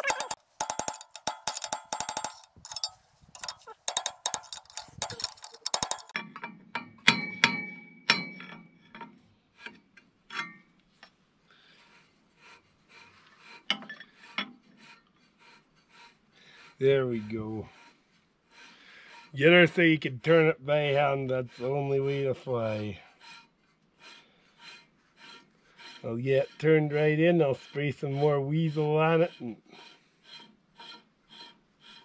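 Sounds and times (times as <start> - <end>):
hammer striking steel bar: 0.0 - 8.6.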